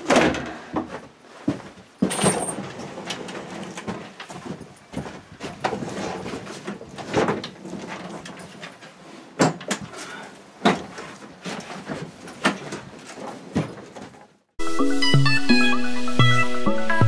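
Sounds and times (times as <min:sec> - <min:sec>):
boots scuffing on wooden floor: 0:00.7 - 0:02.4, 0:03.8 - 0:06.7.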